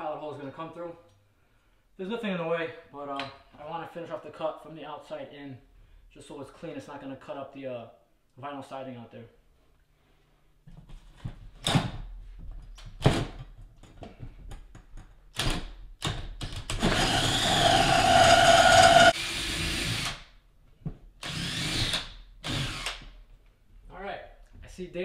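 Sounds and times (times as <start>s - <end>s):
drill with hole saw knocking: 16.6s - 20.2s, 21.2s - 23.0s
drill motor whine: 16.8s - 20.1s, 21.2s - 22.0s.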